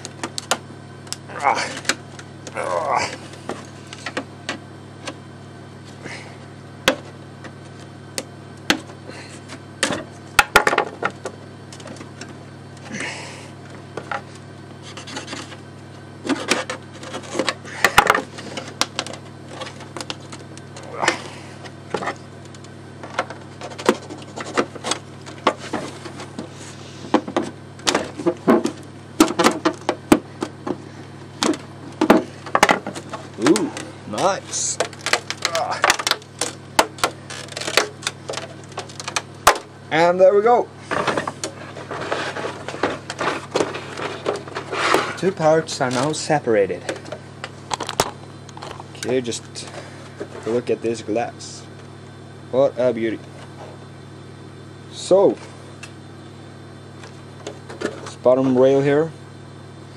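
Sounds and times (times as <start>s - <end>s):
steady low hum: 0.0s - 59.9s
plastic parts clicking and scraping: 34.5s - 39.6s, 40.9s - 46.1s.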